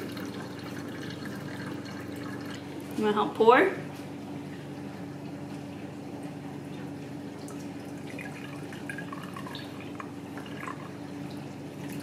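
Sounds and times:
coffee trickling and dripping: 0:00.0 - 0:03.0, 0:06.7 - 0:12.0
steady low hum: 0:00.0 - 0:12.0.

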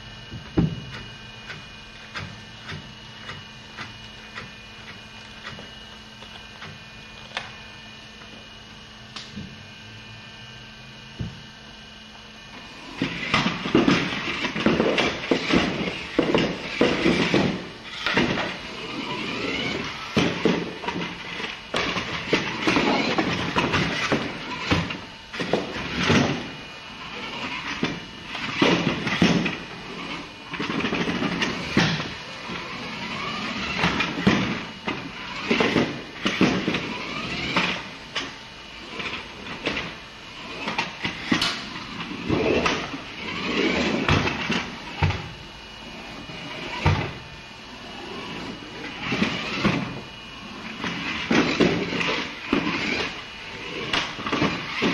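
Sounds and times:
toy car electric motor whining: 0:12.4 - 0:54.9
toy car wheels rumbling: 0:12.7 - 0:45.2, 0:47.9 - 0:54.9.

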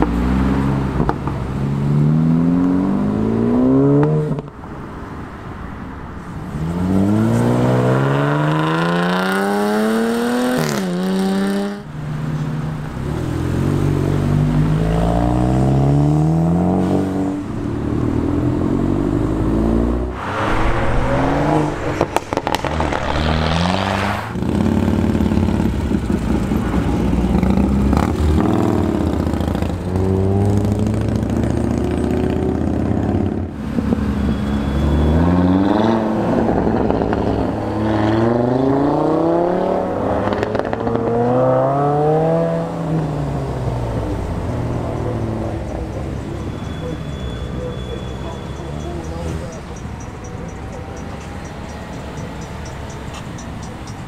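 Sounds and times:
car engines revving hard: 0:00.0 - 0:04.5, 0:06.2 - 0:54.0.

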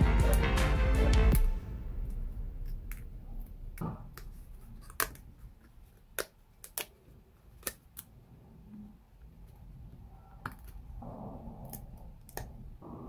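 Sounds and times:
wooden pieces snapping clicks: 0:03.8 - 0:05.3, 0:06.0 - 0:08.1, 0:11.6 - 0:12.6.

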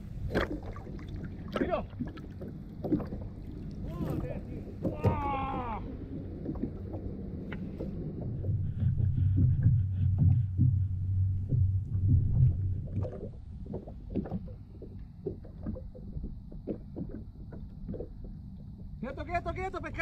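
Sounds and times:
low rumble: 0:00.0 - 0:20.0
water lapping against kayak hull: 0:00.0 - 0:20.0
small knocks and splashes: 0:00.2 - 0:05.8, 0:11.5 - 0:18.4.

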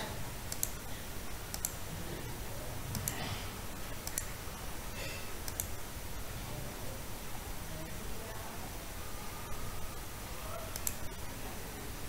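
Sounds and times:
low steady hum: 0:00.0 - 0:12.0
computer mouse clicking: 0:00.5 - 0:00.9, 0:01.5 - 0:01.8, 0:02.9 - 0:03.2, 0:04.0 - 0:04.3, 0:05.4 - 0:05.8, 0:10.7 - 0:11.2.

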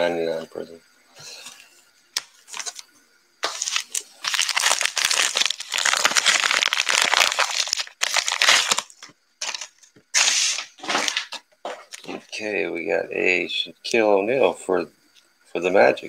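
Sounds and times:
plastic mailer crinkling: 0:02.2 - 0:02.8, 0:03.4 - 0:12.4.

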